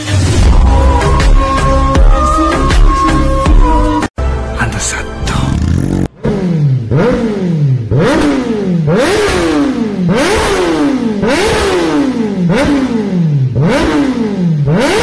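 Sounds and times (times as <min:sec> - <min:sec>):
motorcycle engine revving: 0:05.2 - 0:15.0.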